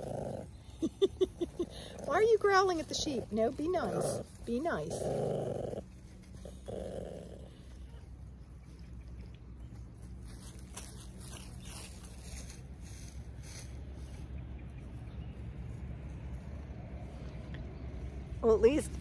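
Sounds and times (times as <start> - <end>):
small dog growling: 0.0 - 8.0.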